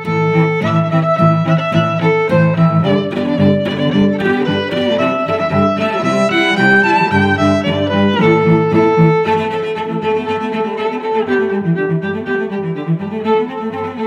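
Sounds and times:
violin and cello music: 0:00.0 - 0:14.0.

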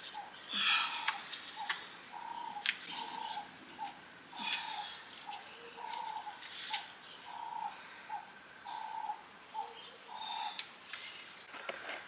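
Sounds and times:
small birds chirping: 0:00.0 - 0:11.4
dove cooing: 0:00.2 - 0:06.4, 0:07.3 - 0:10.6.

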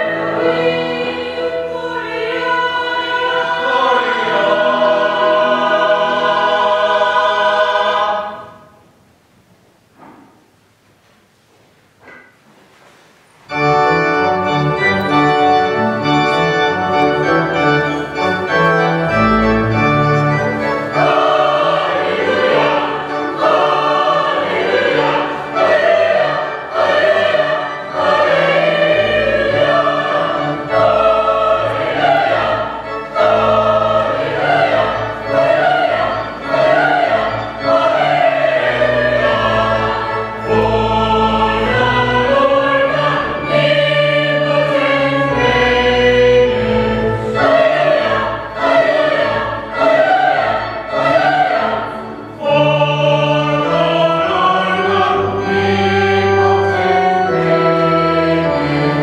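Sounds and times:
choir singing a carol: 0:00.0 - 0:08.9, 0:13.5 - 0:59.0
organ chords and bass notes: 0:13.5 - 0:59.0.

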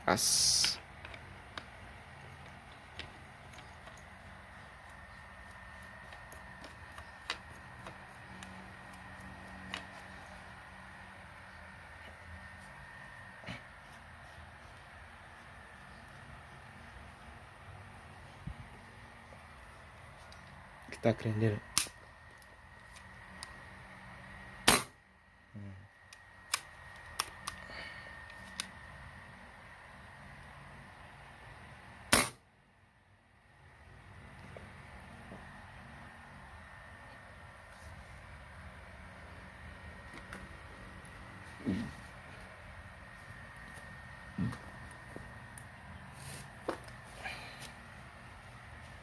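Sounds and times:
air rifle shot: 0:24.6 - 0:25.0, 0:32.1 - 0:32.4.

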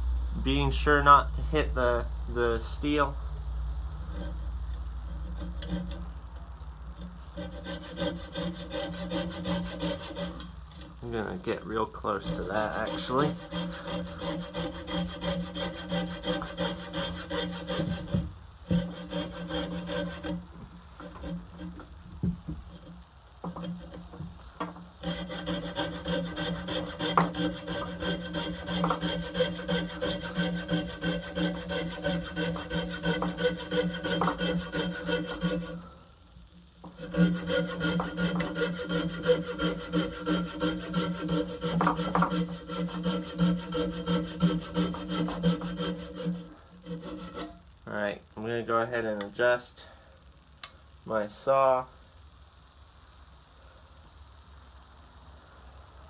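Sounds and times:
saw cutting through wood: 0:07.0 - 0:20.4, 0:25.0 - 0:36.0, 0:36.8 - 0:47.6.

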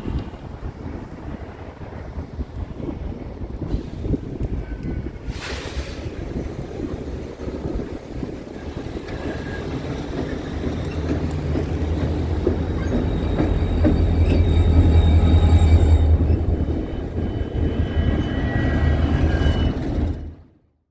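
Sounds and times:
locomotive engines droning: 0:06.0 - 0:20.6
wheel squeal: 0:08.5 - 0:12.0, 0:12.6 - 0:20.4.

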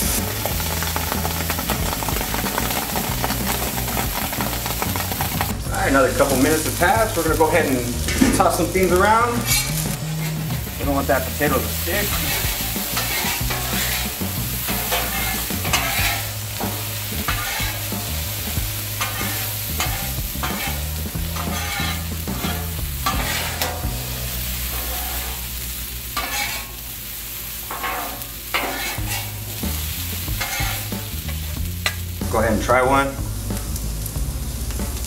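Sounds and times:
metal spatulas scraping griddle: 0:00.0 - 0:26.9, 0:27.7 - 0:32.7
potatoes sizzling: 0:00.0 - 0:35.0.

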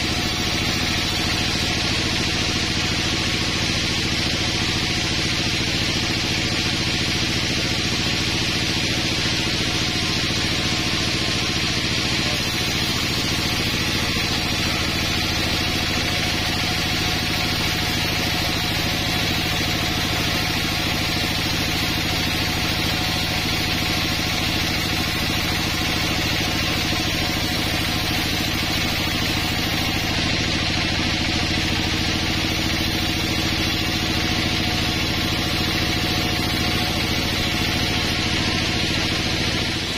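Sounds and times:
band saw cutting wood: 0:00.0 - 0:39.9.

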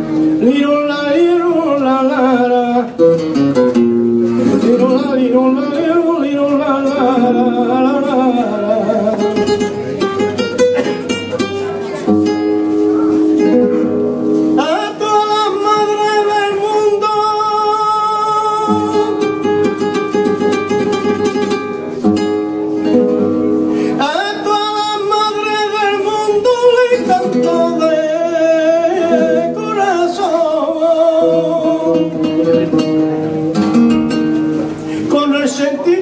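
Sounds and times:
man singing melismatic phrases: 0:00.0 - 0:03.4, 0:04.3 - 0:09.6, 0:14.6 - 0:20.1, 0:23.9 - 0:33.0, 0:34.9 - 0:36.0
plucked acoustic guitar: 0:00.0 - 0:36.0.

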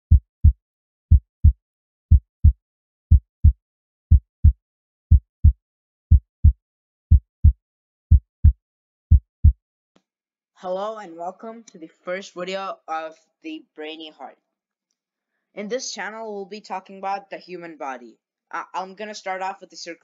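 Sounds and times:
heartbeat thumps: 0:00.0 - 0:09.6.

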